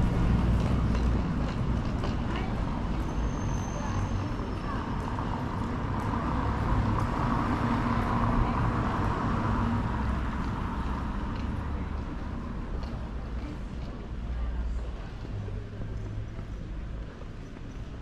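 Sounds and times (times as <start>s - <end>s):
city traffic noise: 0.0s - 18.0s.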